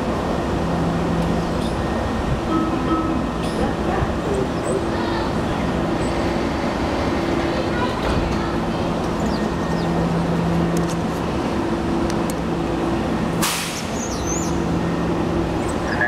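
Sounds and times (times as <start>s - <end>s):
train electrical hum: 0.0s - 16.0s
sharp hiss of air: 13.4s - 14.0s.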